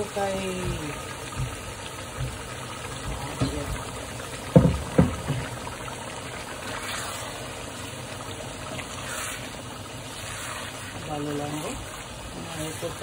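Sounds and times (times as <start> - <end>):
rice pot hissing: 0.0 - 13.0
knocks: 4.5 - 5.6.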